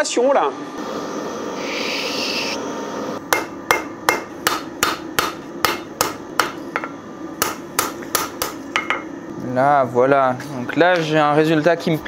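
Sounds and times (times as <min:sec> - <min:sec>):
hammer tapping hot steel on anvil: 0:03.3 - 0:09.1.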